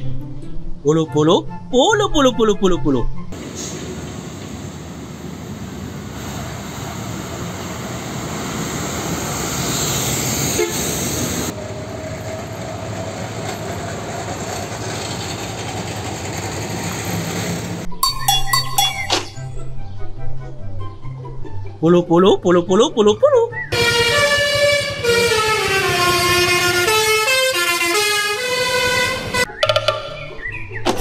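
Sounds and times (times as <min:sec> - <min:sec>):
truck engine and road rumble: 0:02.8 - 0:18.0, 0:23.0 - 0:29.6.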